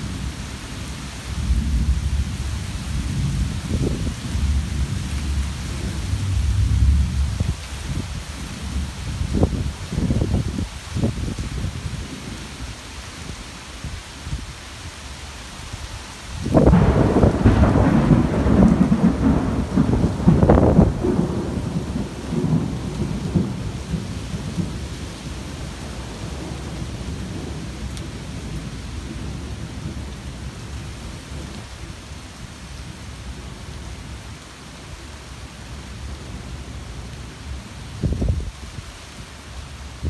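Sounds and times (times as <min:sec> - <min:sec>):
steady rain: 0:00.0 - 0:40.0
thunder crackling and rumbling: 0:01.3 - 0:12.6, 0:16.4 - 0:31.8, 0:37.4 - 0:39.0.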